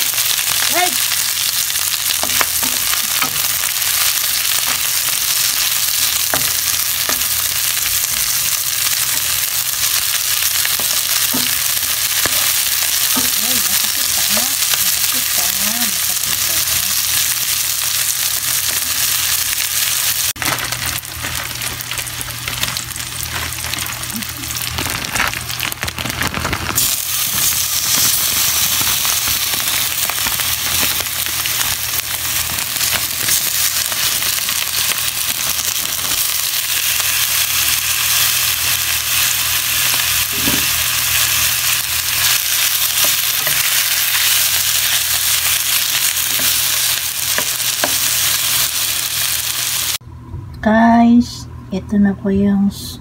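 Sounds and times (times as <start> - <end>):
meat and onions sizzling in oil: 0.0 - 50.0.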